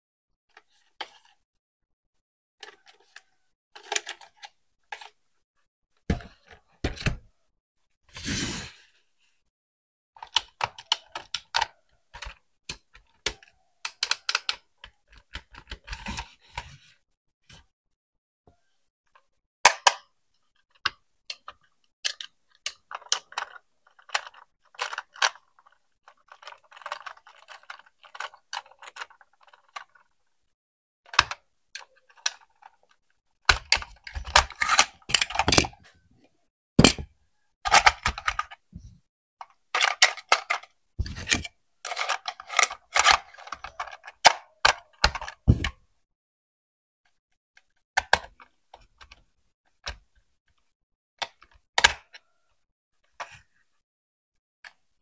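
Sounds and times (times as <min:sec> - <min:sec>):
toy parts knocking and clattering: 0:02.6 - 0:05.2, 0:10.2 - 0:16.4, 0:19.7 - 0:30.2, 0:31.1 - 0:35.8, 0:36.8 - 0:38.7, 0:39.4 - 0:45.8.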